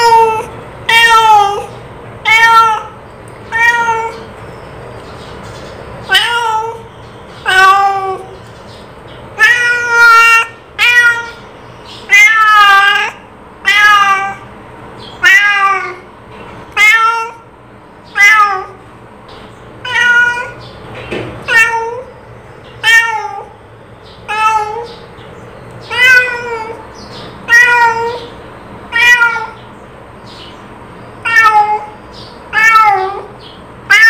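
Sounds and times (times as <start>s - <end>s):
cat meowing: 0.0s - 4.3s, 6.1s - 8.4s, 9.4s - 14.5s, 15.2s - 16.1s, 16.7s - 18.8s, 19.8s - 20.6s, 21.4s - 22.2s, 22.8s - 23.6s, 24.3s - 25.0s, 25.8s - 29.7s, 31.2s - 34.0s.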